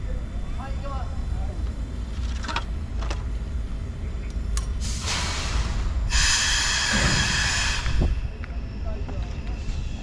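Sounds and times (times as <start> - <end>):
steam locomotive hissing: 4.8 - 10.0.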